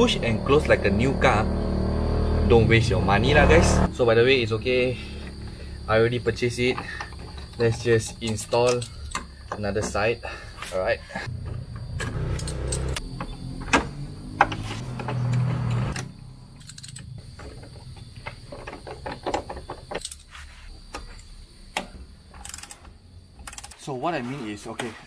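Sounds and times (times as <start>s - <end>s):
hand tool metallic clicks: 7.5s - 9.3s, 16.6s - 17.1s.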